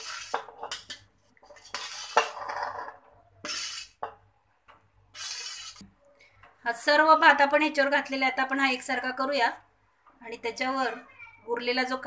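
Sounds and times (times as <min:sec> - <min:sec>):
rice scraped from steel vessel: 0:00.0 - 0:04.1, 0:05.1 - 0:05.8.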